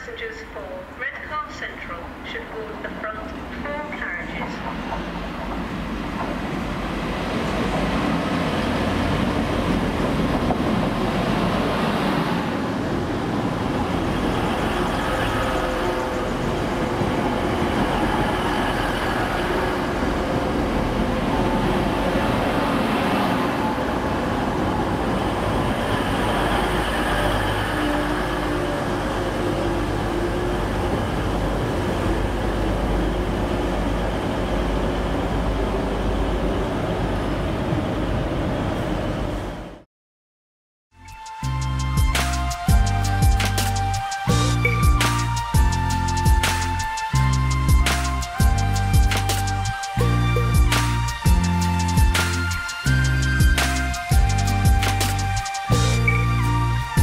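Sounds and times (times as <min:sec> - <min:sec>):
train wheels rumbling on rails: 0:02.7 - 0:39.8.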